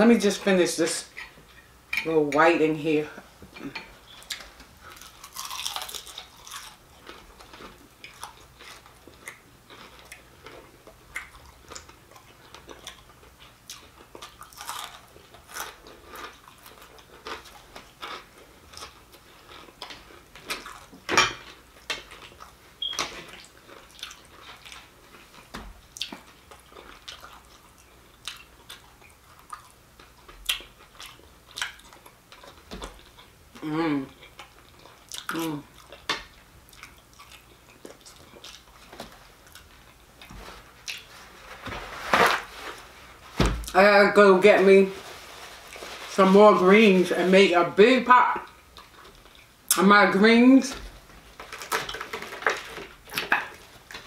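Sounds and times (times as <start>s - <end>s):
close chewing with mouth clicks: 4.0s - 41.1s, 48.5s - 49.7s.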